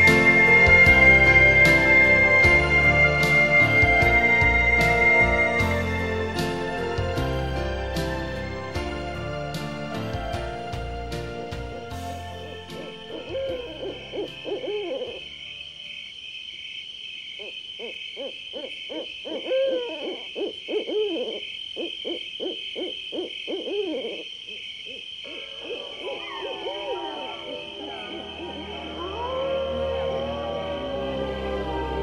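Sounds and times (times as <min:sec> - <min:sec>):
high-pitched insect drone: 0:00.0 - 0:07.0, 0:12.0 - 0:32.0
night animal calls: 0:00.0 - 0:07.0, 0:11.7 - 0:32.0.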